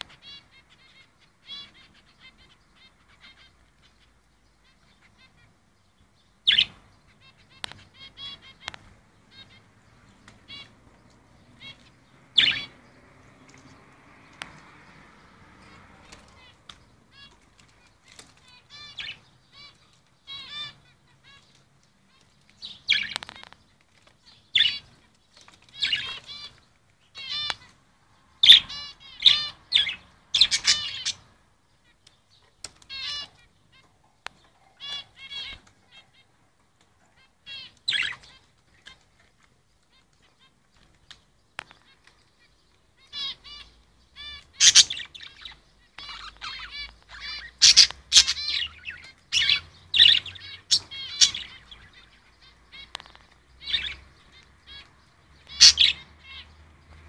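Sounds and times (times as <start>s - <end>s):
parrot chirping: 6.4s - 10.8s, 11.4s - 23.5s, 24.2s - 25.0s, 25.6s - 27.7s, 28.4s - 32.0s, 32.9s - 36.4s, 37.1s - 39.0s, 43.0s - 53.0s, 53.6s - 56.7s.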